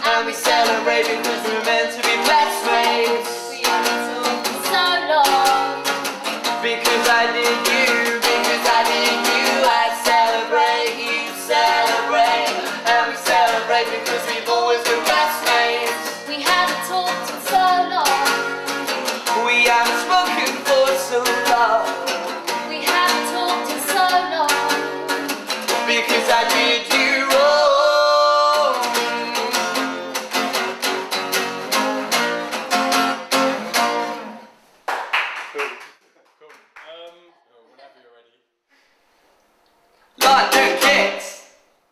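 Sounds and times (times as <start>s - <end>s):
man singing: 0.0s - 4.7s, 6.4s - 16.7s, 19.2s - 23.1s, 25.7s - 30.0s, 40.2s - 41.5s
acoustic guitar strumming: 0.0s - 34.6s, 40.2s - 41.4s.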